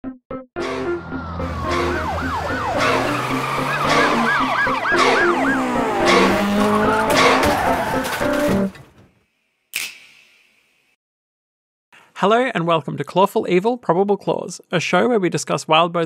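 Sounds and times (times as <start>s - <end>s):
intro theme music: 0.4s - 8.7s
siren-like sweeping tone: 0.6s - 8.3s.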